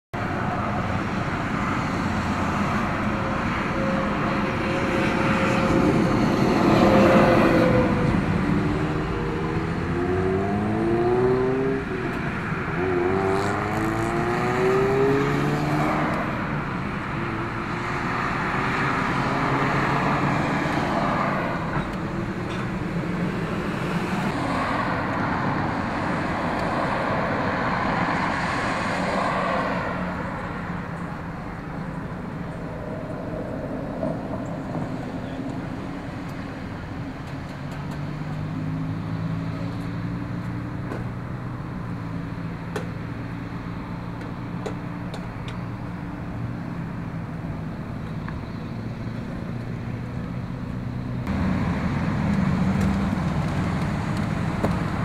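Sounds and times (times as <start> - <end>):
traffic passing: 0.2 - 55.0
vehicle engine revving: 4.1 - 20.8.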